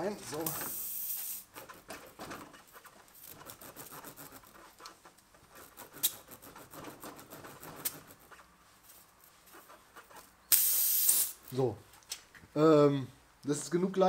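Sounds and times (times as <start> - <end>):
rubbery scraping and squeaking: 1.4 - 10.5.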